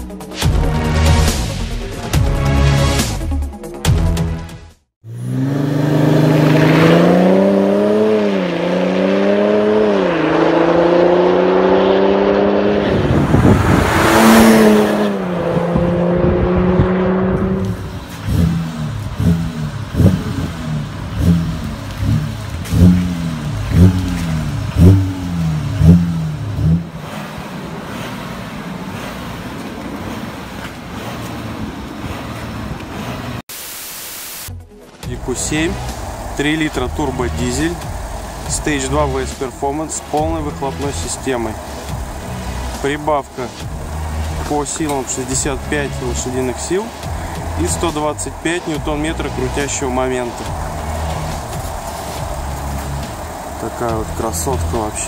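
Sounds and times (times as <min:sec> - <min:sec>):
car engine revving: 0:05.0 - 0:33.5, 0:35.1 - 0:55.0
car accelerating past: 0:05.1 - 0:33.4, 0:35.2 - 0:55.0
car engine idling: 0:11.8 - 0:33.4, 0:35.0 - 0:55.0.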